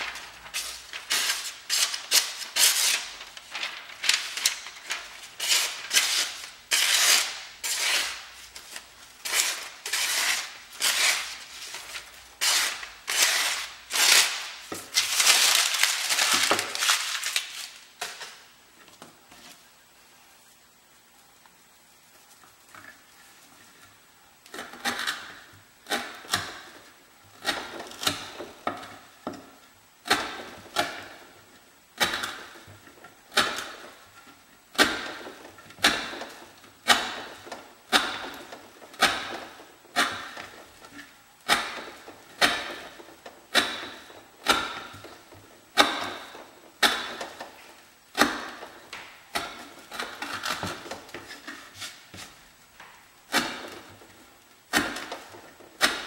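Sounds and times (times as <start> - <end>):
knife chopping rope on wood: 34.7 - 40.6, 41.5 - 45.2, 45.8 - 47.4, 48.1 - 53.8, 54.7 - 55.2.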